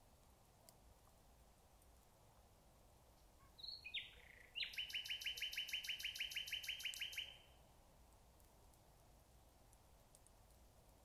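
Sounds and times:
nightingale singing: 3.4 - 7.6.

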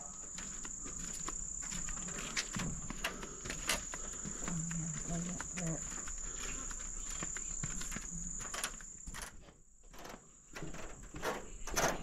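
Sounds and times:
footsteps on steel mesh boardwalk: 0.0 - 12.0
insects chirring: 0.0 - 12.0
walkway creaking: 0.0 - 12.0.

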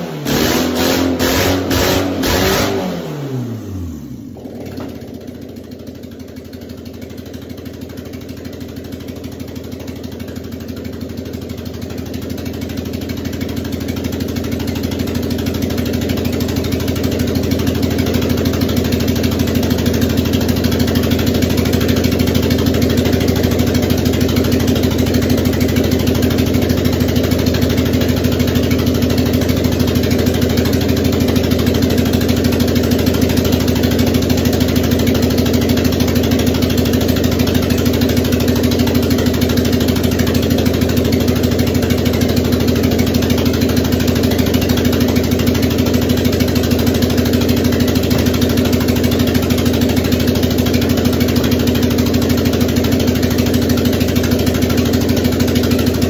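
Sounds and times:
car engine idling: 3.2 - 56.0.

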